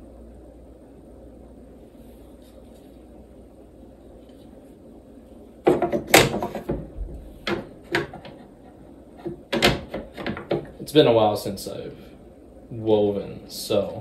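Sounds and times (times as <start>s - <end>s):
wooden loom knocks and clacks: 5.7s - 8.4s, 9.2s - 10.7s.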